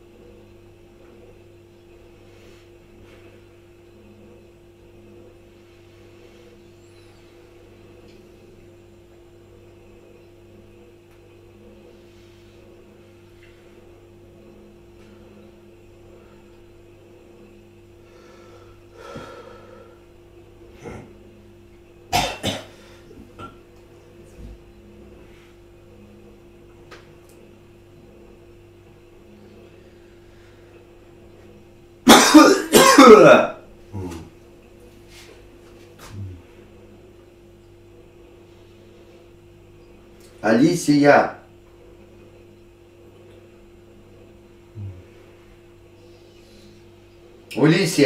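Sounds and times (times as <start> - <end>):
low room hum: 0.0 - 48.0
person coughing: 22.1 - 22.8, 32.1 - 34.2.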